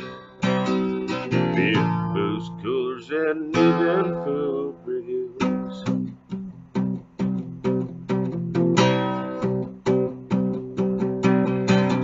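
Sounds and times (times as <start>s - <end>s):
acoustic guitar strumming chords: 0.0s - 12.0s.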